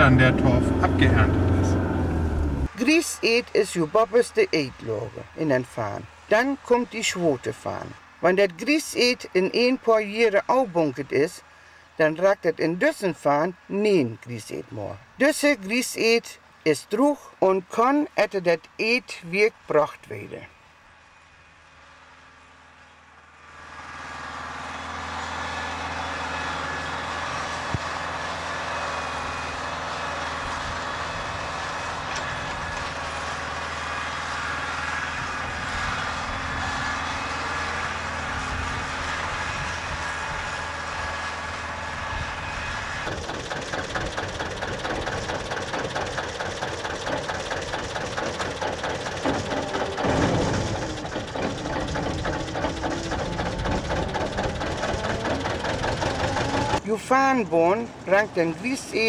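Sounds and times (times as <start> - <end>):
diesel engine running: 0.0 - 8.2, 21.4 - 59.0
train wagons clattering on track: 43.0 - 56.9.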